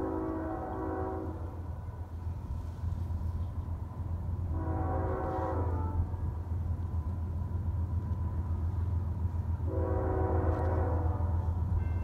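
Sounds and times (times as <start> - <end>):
locomotive air horn blast: 0.0 - 1.6, 4.5 - 6.2, 9.6 - 11.7.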